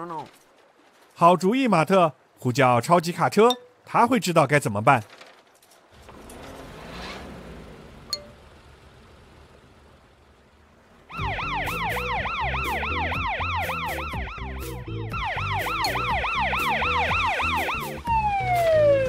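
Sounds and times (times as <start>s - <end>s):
cartoon police siren wailing: 11.1s - 19.0s.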